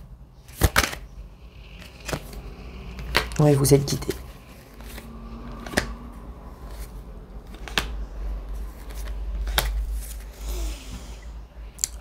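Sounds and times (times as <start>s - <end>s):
low steady hum: 0.0s - 12.0s
cards clicking: 0.5s - 1.0s, 1.8s - 3.5s, 4.7s - 6.0s, 6.6s - 8.0s, 8.7s - 10.3s.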